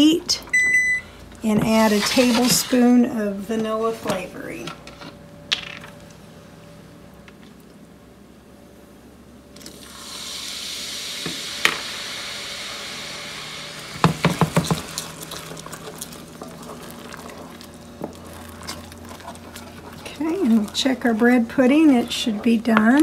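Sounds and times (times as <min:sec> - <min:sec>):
sauce sizzling: 0:09.7 - 0:23.0
stirring thick sauce: 0:14.3 - 0:23.0.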